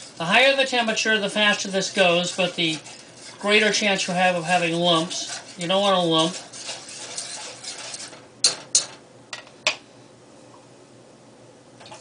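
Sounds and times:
whisk stirring sauce in saucepan: 0.0s - 8.9s.

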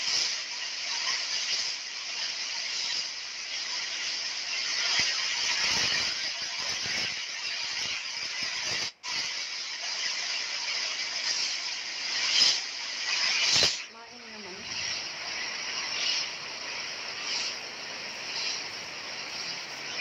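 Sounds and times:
heavy rain pouring: 13.1s - 20.0s.

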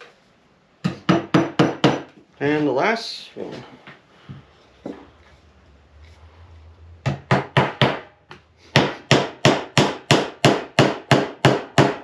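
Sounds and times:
hammer hitting nail into wood: 1.0s - 2.1s, 8.7s - 12.0s.

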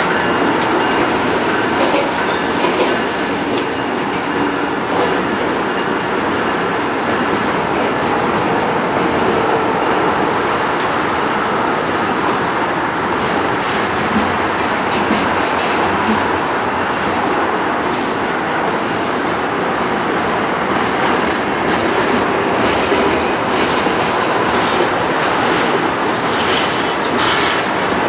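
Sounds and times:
high wheel squeal: 0.0s - 9.6s, 18.4s - 28.0s
train wheels rumbling on rail: 0.0s - 28.0s.

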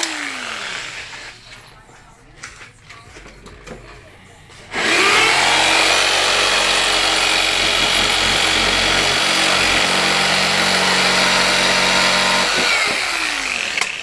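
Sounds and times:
electric jigsaw cutting plastic: 0.0s - 1.4s, 4.7s - 14.0s.

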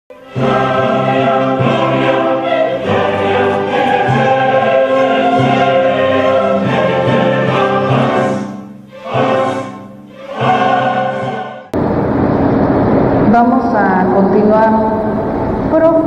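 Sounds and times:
choir singing held chords: 0.1s - 12.3s.

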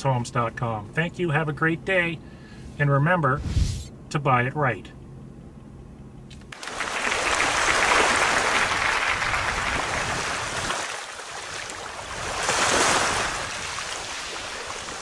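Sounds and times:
loud even rushing noise: 3.4s - 3.9s.

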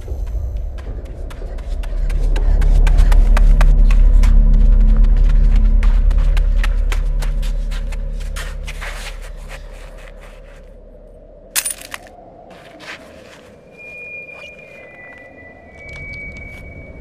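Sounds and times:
low rumbling drone: 0.0s - 12.5s.

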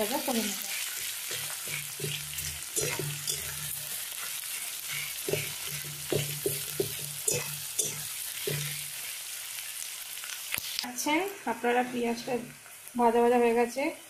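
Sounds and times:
onions sizzling in hot oil: 0.0s - 14.0s
spatula scraping pan: 0.3s - 9.1s.

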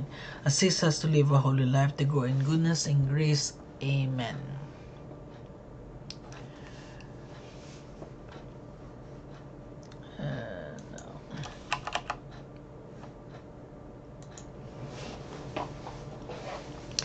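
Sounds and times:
low steady hum: 0.0s - 17.0s
keyboard and mouse clicks: 10.8s - 12.2s, 14.2s - 14.5s.

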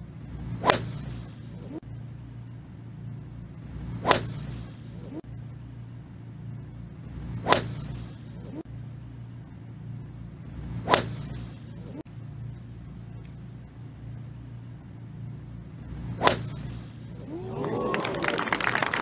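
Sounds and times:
steady low hum: 0.0s - 19.0s
golf club striking ball: 0.6s - 1.3s, 4.0s - 4.7s, 7.4s - 8.2s, 10.8s - 11.5s, 16.2s - 16.9s.

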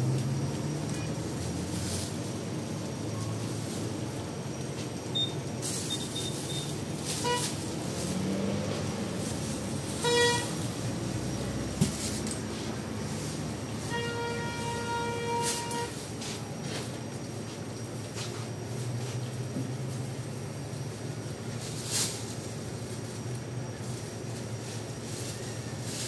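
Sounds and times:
vehicle engine running: 0.0s - 26.0s
vehicle horn tooting: 5.8s - 8.3s, 9.3s - 10.8s, 13.1s - 16.2s.

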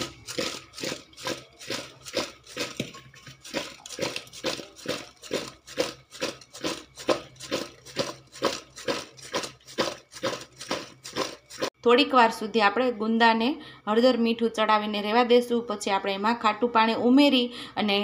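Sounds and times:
fruits rattling in steel bowl: 0.0s - 11.7s.

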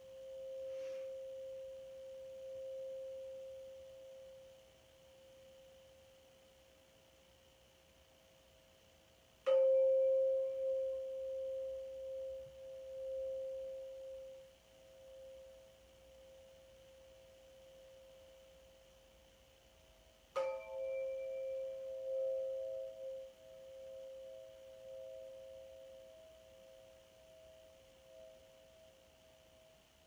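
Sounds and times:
sound healing instrument ringing: 0.0s - 4.7s, 9.4s - 18.5s, 20.4s - 30.0s.

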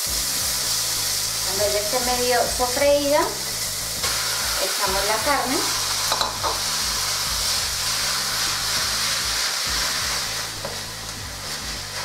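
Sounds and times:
meat sizzling in a pan: 0.0s - 12.0s
spatula stirring meat: 5.8s - 12.0s.

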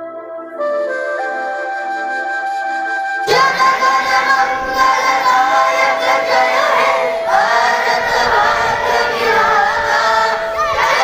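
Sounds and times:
children singing together: 3.2s - 11.0s
boy singing into a microphone: 3.3s - 11.0s.

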